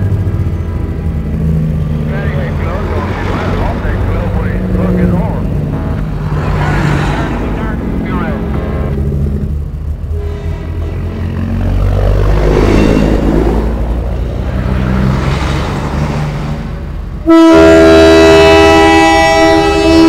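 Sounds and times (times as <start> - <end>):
truck diesel engines rumbling: 0.0 - 20.0
truck air horn blast: 4.4 - 6.1, 10.1 - 11.3, 17.2 - 20.0.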